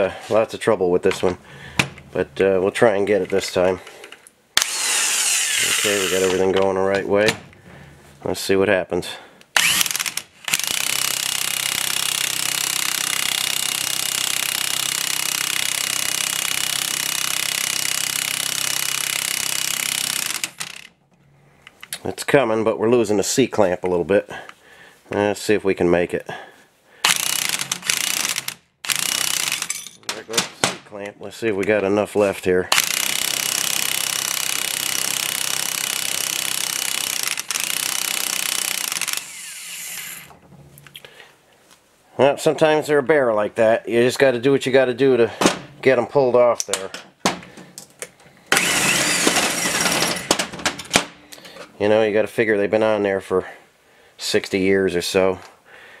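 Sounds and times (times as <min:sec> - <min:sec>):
impact wrench hammering: 0:09.6 - 0:20.9, 0:27.1 - 0:30.0, 0:32.7 - 0:40.4, 0:48.5 - 0:51.2.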